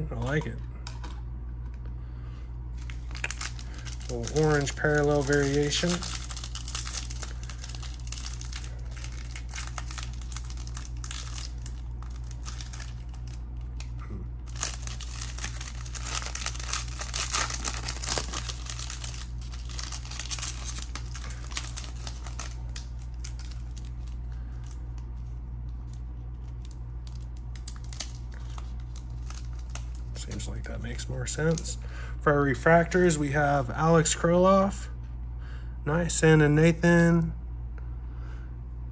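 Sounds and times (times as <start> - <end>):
plastic and foil wrapper crinkling: 2.8 - 31.9.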